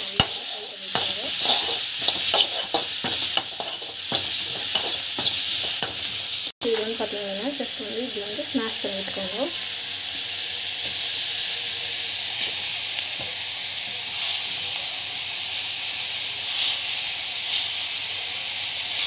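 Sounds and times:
oil sizzling in a pan: 0.0 - 19.0
metal spoon scraping: 0.1 - 6.3.

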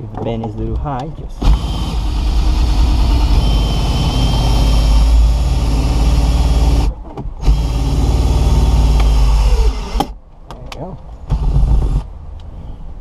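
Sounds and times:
cordless drill motor whining: 1.4 - 10.1.

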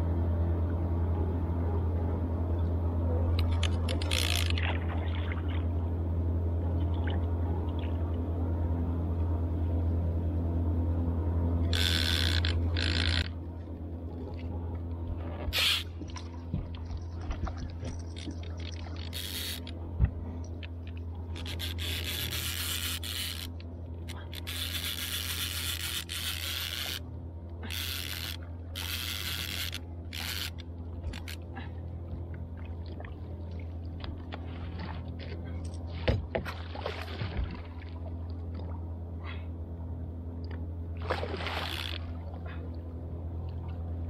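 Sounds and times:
low motor hum: 0.0 - 44.0
fishing reel cranking and clicking: 3.4 - 4.6, 11.6 - 13.4, 15.5 - 16.0, 18.0 - 19.8, 21.3 - 27.0, 27.6 - 31.4, 41.6 - 42.0.

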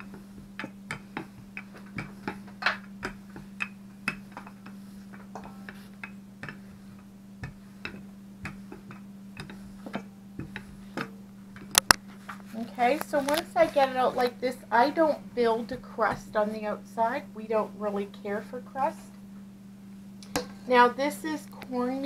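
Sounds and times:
rolling pin clicking and knocking: 0.0 - 12.0
steady low hum: 0.0 - 22.0.

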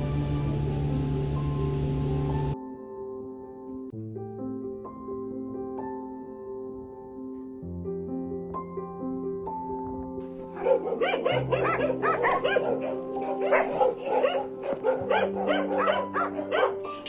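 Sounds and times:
background music with held notes: 0.0 - 17.0
dogs barking and yipping: 10.4 - 17.0.

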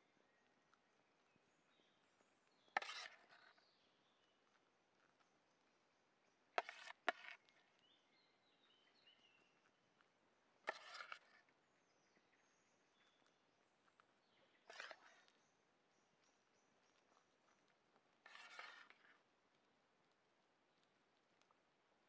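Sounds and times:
metal spoon scraping a metal pan: 2.8 - 3.5, 6.6 - 7.4, 10.7 - 11.4, 14.7 - 15.2, 18.3 - 19.0
faint bird chirps: 11.2 - 17.7.

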